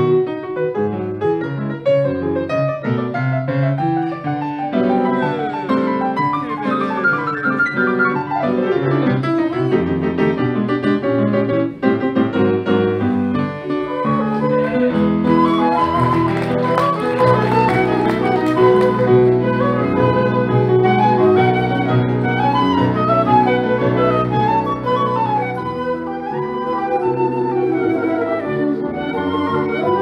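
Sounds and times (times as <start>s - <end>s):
fast grand piano solo: 0.0s - 30.0s
flutes: 13.4s - 30.0s.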